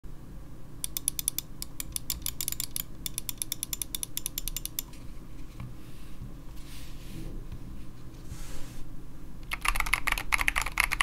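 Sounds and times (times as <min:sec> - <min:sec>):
mouse scroll wheel clicking: 0:00.8 - 0:04.9.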